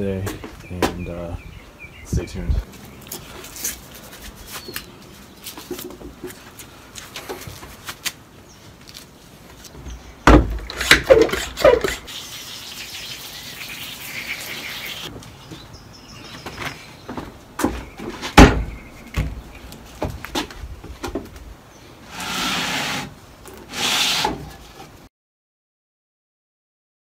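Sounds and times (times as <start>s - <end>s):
squeaky hand pump strokes: 10.6s - 15.1s
water spraying hiss: 12.0s - 15.1s.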